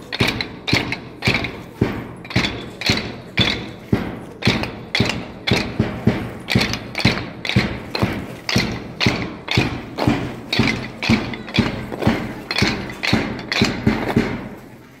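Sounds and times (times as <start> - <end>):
wooden dumbbells clacking: 0.0 - 14.6.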